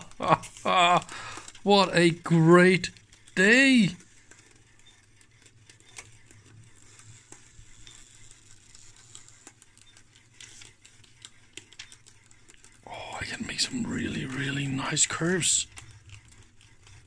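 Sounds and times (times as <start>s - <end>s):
paper chart rustling: 0.0s - 17.0s
pens scratching on paper chart: 0.0s - 17.0s
low steady hum: 11.9s - 17.0s.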